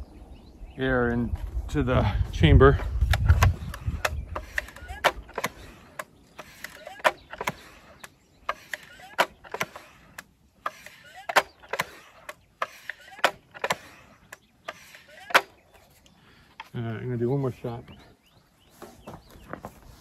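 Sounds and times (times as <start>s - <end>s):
air rifle hand pump strokes: 2.7s - 16.1s.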